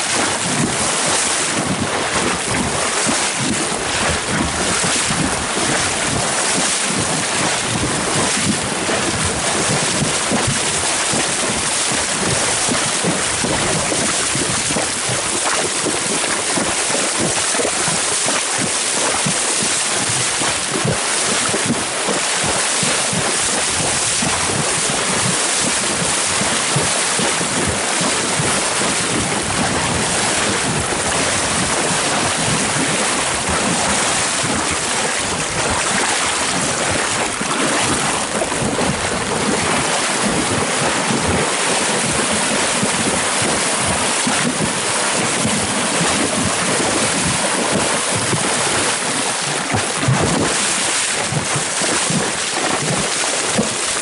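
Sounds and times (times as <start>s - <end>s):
horses splashing through water: 0.0s - 54.0s.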